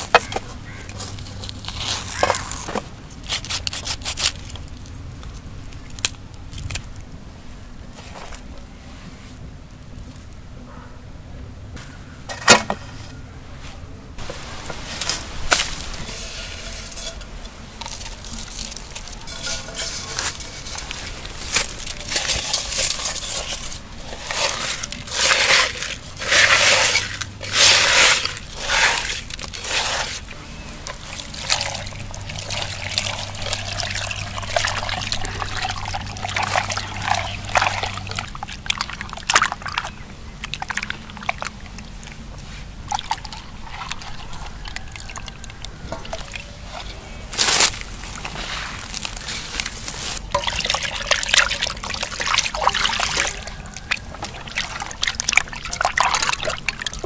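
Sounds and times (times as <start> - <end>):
water sloshing and splashing: 14.2 - 57.0.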